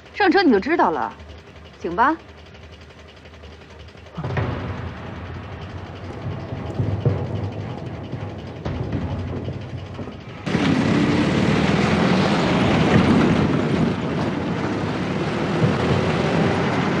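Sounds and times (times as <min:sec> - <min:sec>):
jeep engine running: 0:00.0 - 0:17.0
tyre and road noise: 0:00.0 - 0:17.0.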